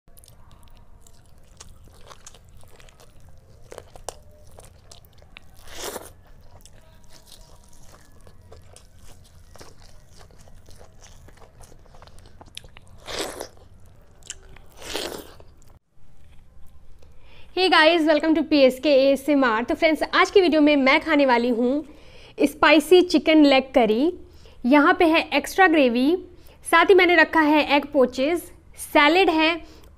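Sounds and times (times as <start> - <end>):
person chewing food: 0.1 - 16.8.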